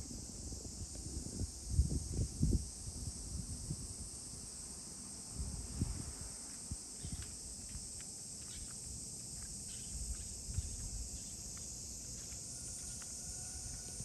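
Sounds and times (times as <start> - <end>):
high-pitched insect drone: 8.4 - 14.0.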